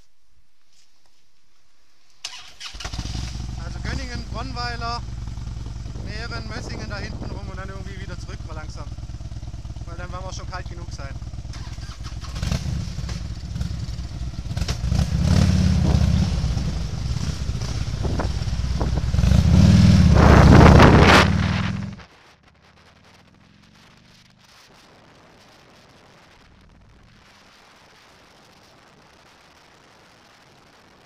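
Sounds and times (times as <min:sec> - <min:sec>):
faint steady hiss: 0:00.0 - 0:31.0
motorcycle engines accelerating hard: 0:02.8 - 0:22.1.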